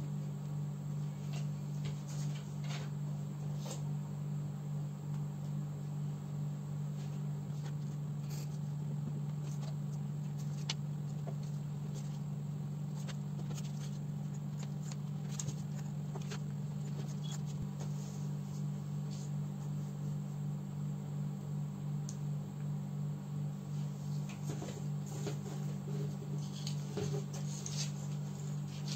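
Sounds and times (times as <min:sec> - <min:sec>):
steady low hum: 0:00.0 - 0:28.9
paper rustling: 0:07.5 - 0:12.2, 0:12.9 - 0:18.0.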